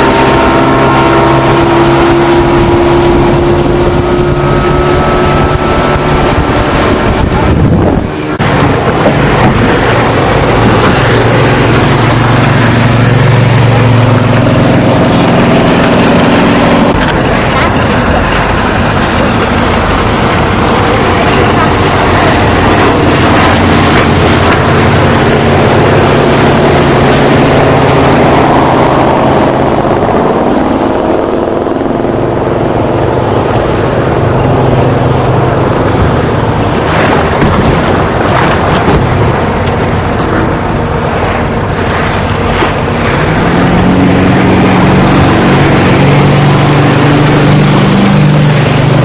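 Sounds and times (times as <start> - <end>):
motorboat engines droning: 0.0 - 49.0
passing boat engine: 0.0 - 49.0
rushing water: 0.0 - 49.0
wind on microphone: 0.0 - 49.0.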